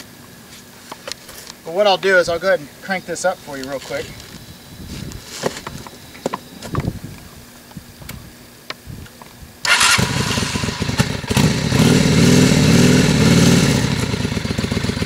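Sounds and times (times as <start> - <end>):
motorcycle engine starting and revving: 9.6 - 15.0.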